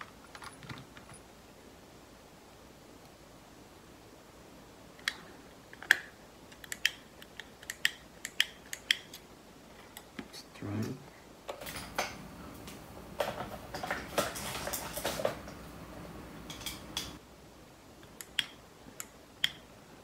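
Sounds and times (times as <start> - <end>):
clatter of tools on workbench: 13.2 - 15.6
sharp switch clicks: 18.1 - 19.6.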